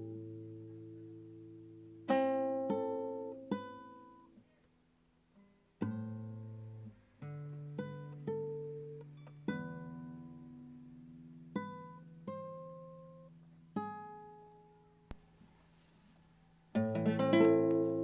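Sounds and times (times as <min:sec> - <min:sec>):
classical guitar melody: 0:00.0 - 0:18.0.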